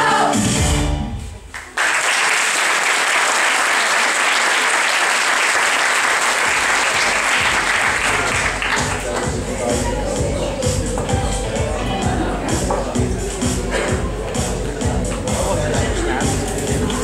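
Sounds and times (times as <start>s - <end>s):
song with backing music: 0.0s - 1.5s, 7.0s - 17.0s
audience applause: 1.5s - 9.4s.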